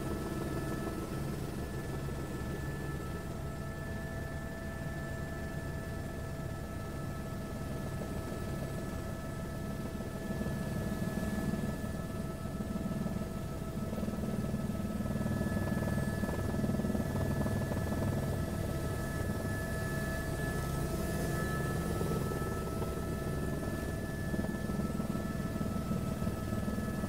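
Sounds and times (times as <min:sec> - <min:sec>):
helicopter engine and rotor drone: 0:00.0 - 0:27.0
thin whining tones: 0:14.3 - 0:27.0.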